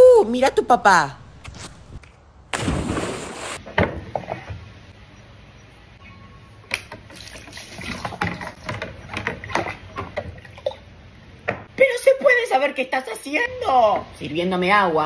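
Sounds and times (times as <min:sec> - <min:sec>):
water splashing: 0:02.5 - 0:03.6.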